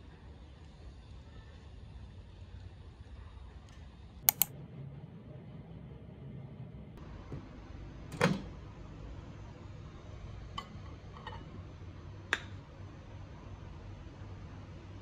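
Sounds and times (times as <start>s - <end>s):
light clicks: 3.7s - 4.5s.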